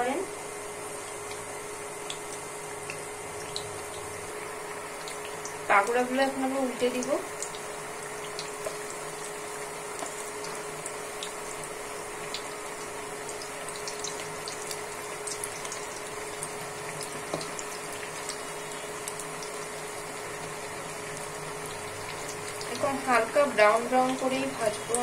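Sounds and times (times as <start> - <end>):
deep-frying sizzle and bubbling: 0.0 - 25.0
faint steady hum: 0.0 - 25.0.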